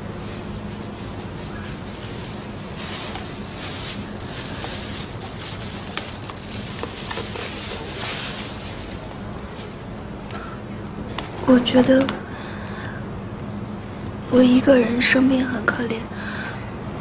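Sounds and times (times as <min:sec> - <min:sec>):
steady low hum: 0:00.0 - 0:17.0
cloth jacket rustling: 0:00.2 - 0:09.9.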